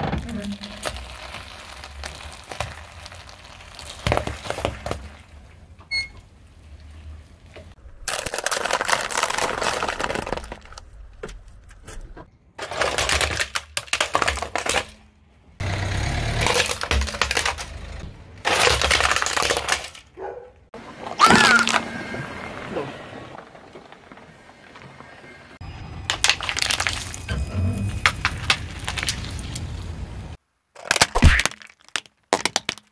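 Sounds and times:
objects crunching under car tyre: 0.0 - 22.0, 26.1 - 32.9
plastic toy car cracking: 8.0 - 11.4, 12.6 - 20.2, 30.8 - 32.9
pomegranates bursting: 26.1 - 32.9.

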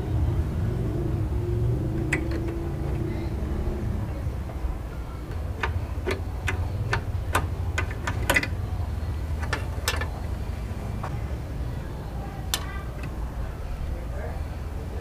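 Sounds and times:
steady low rumble: 0.0 - 15.0
metallic clicks and taps: 2.0 - 3.1, 5.3 - 8.6, 9.4 - 10.2.

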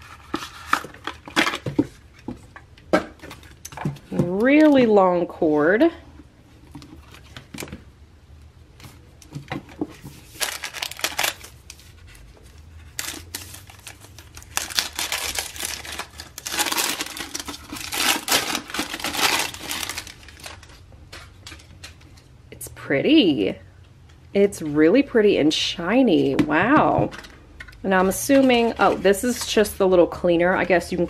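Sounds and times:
plastic wrapping crinkling and tearing: 10.0 - 22.0.

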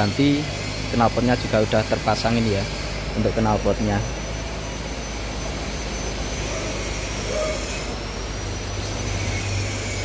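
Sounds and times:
machinery drone: 0.0 - 10.0
thin high whine: 0.0 - 10.0.

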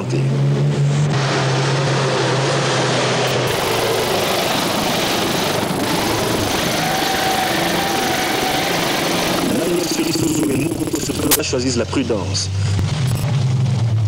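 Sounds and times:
rally car engine running: 0.0 - 14.0.

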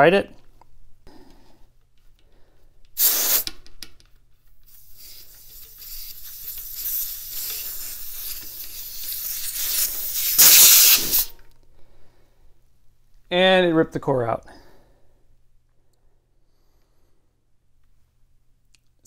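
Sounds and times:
air hissing from tyre valve: 3.0 - 3.6, 4.7 - 11.4.

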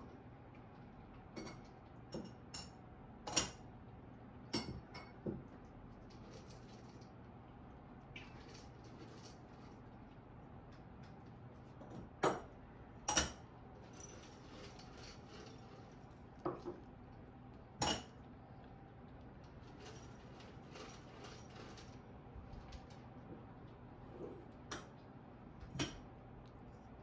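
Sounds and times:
faint room hiss: 0.0 - 27.0.

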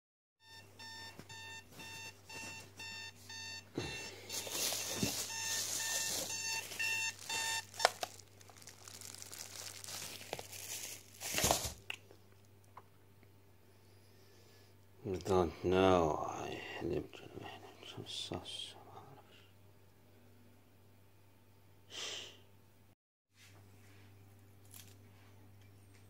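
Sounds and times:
alarm beeping: 0.4 - 8.0
rustling handling noises: 1.0 - 12.4, 23.4 - 26.0.

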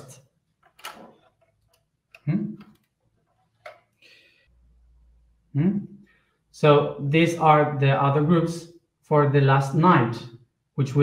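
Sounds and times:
man speaking: 2.2 - 2.6, 5.6 - 5.8, 6.6 - 10.2, 10.8 - 11.0.

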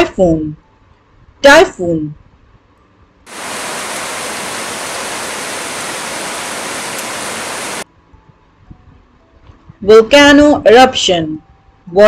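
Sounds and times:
heavy rain pouring: 3.3 - 7.8.

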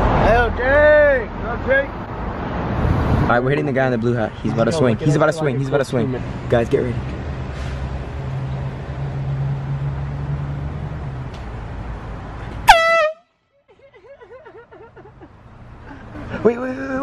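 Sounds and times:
air horn blast: 12.7 - 13.3.

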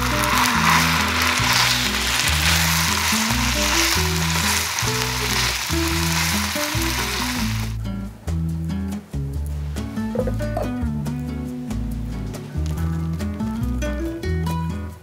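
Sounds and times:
fish sizzling in a frying pan: 0.0 - 7.8
background music with low notes: 0.0 - 15.0.

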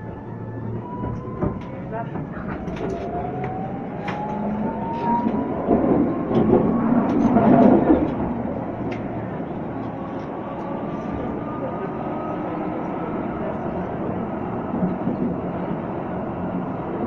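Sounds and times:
rail clicks: 0.0 - 11.5
tram motor whine: 0.0 - 17.0.

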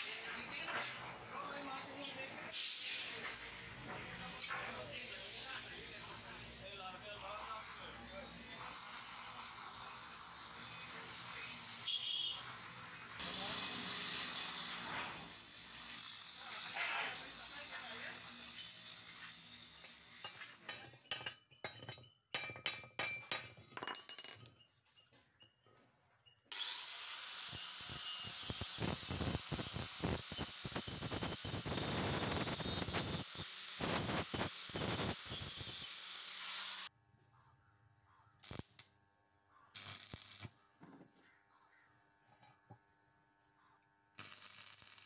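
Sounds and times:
stick welding arc bursts: 2.5 - 3.4, 5.0 - 20.6, 26.6 - 36.9, 38.4 - 38.9, 39.7 - 40.6, 44.2 - 45.0
angle grinder grinding steel: 4.3 - 20.8, 26.5 - 36.9
steel plates knocking and clinking: 20.2 - 25.8.

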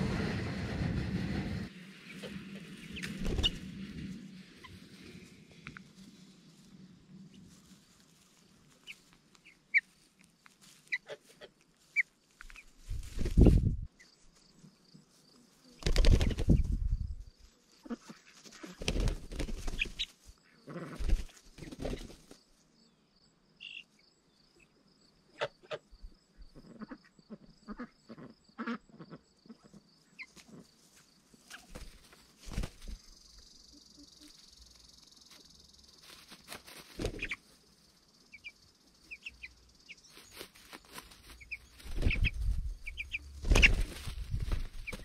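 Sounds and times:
chicks peeping: 18.6 - 20.1, 36.5 - 37.4, 38.3 - 45.0.

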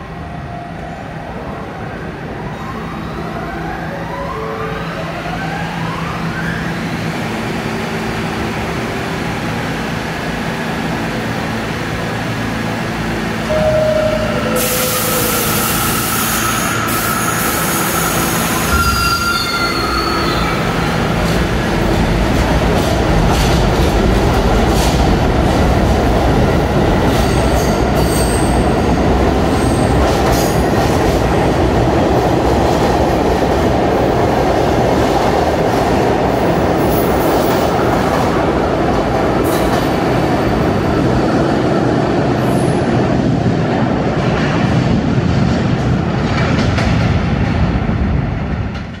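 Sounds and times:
subway train rumble: 0.0 - 49.0
high-pitched wheel squeals: 13.5 - 20.9.

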